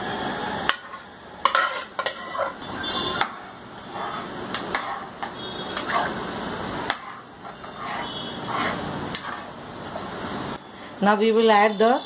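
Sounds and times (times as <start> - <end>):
ladle scraping cookware: 0.7 - 9.6.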